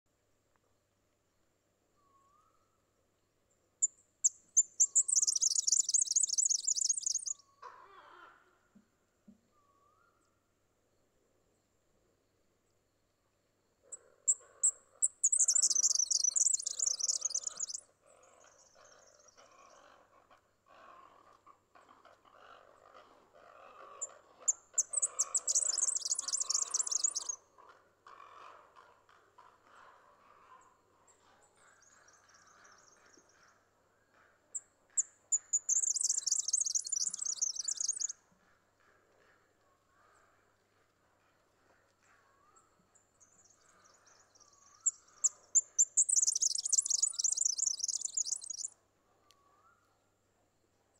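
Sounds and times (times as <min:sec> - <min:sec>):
bird singing rapid reeling trill: 0:04.2 - 0:07.4, 0:15.0 - 0:17.8, 0:24.8 - 0:27.4, 0:35.3 - 0:38.1, 0:44.7 - 0:48.7.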